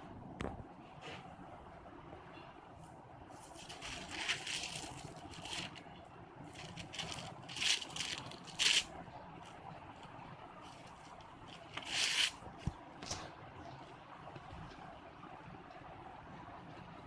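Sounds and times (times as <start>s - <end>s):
sketchbook pages rustling: 3.4s - 5.9s, 6.5s - 13.2s.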